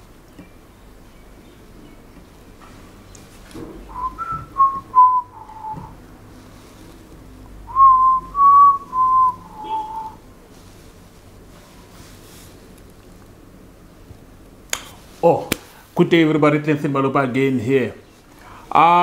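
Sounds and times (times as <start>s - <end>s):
person whistling a tune: 3.9s - 6.0s, 7.7s - 10.2s.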